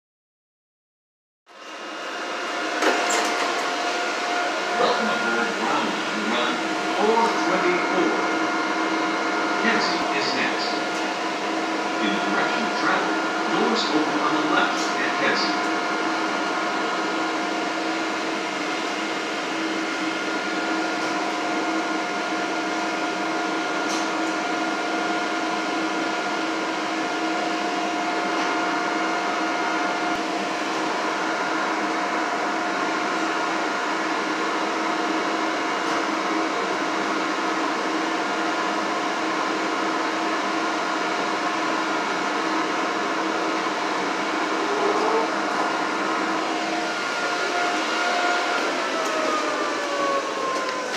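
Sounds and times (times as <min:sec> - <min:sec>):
rail car machinery hum: 0:01.5 - 0:50.9
steady whining tones: 0:01.7 - 0:23.6, 0:41.2 - 0:50.9.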